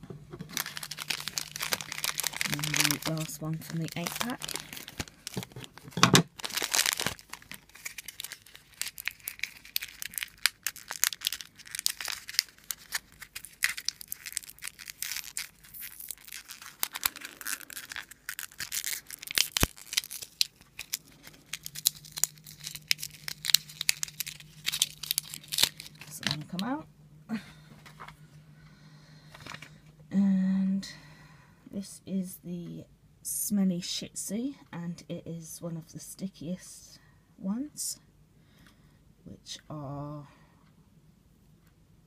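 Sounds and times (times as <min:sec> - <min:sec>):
plastic wrapper crinkling and tearing: 0:00.4 - 0:26.8, 0:29.3 - 0:29.8
scissors cutting plastic wrapper: 0:00.5 - 0:26.8.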